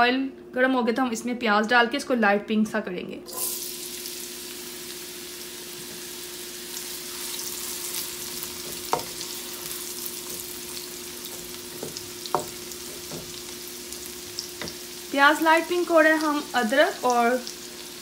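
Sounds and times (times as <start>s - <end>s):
onion sizzling in hot oil: 3.3s - 18.0s
wooden spoon knocking against pan: 11.3s - 13.4s, 14.6s - 14.8s.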